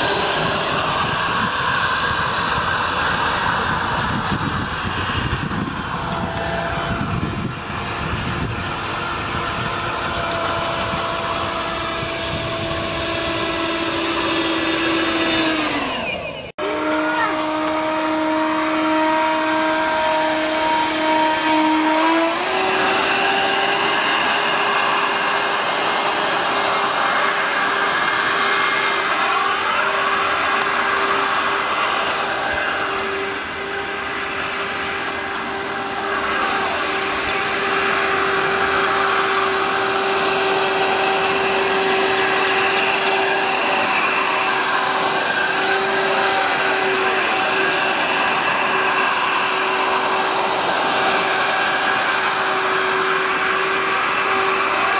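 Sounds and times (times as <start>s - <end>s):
electric fans whining: 0.0s - 54.9s.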